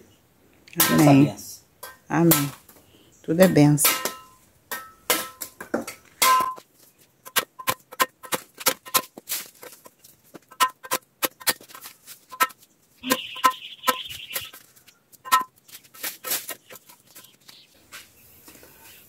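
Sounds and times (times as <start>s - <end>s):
woody stems knocking together: 7.2s - 14.6s, 15.2s - 15.6s.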